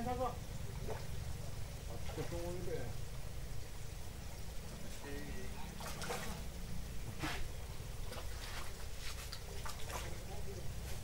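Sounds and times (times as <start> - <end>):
water splash: 5.8 - 6.4.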